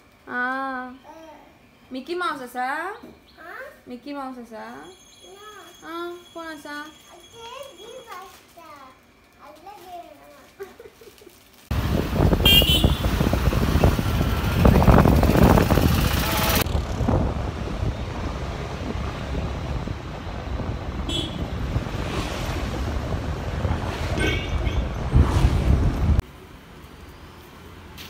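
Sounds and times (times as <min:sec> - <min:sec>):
road traffic: 0:03.0 - 0:09.1, 0:11.7 - 0:28.0
scooters passing: 0:11.7 - 0:25.7
wind rush on microphone: 0:11.7 - 0:26.2
horn toot: 0:12.4 - 0:13.4, 0:15.9 - 0:16.7, 0:21.1 - 0:21.6, 0:24.1 - 0:25.1.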